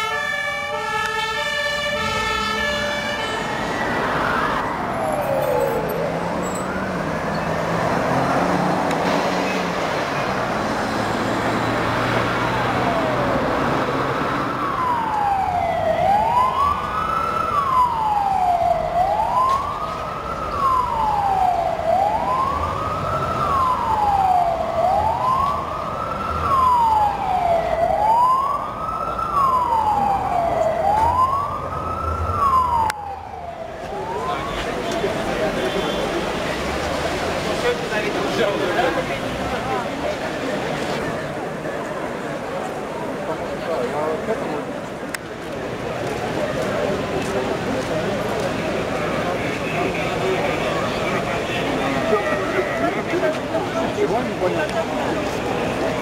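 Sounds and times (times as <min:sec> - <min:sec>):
fainter second siren: 0:00.0 - 0:07.8, 0:14.4 - 0:36.2
emergency siren wailing: 0:00.0 - 0:56.0.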